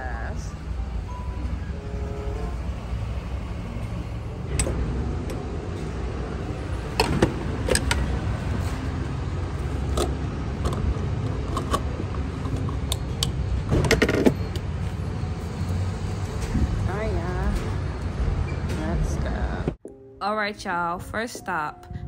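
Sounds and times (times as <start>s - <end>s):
plastic and metal clicks and clunks: 9.8s - 14.7s.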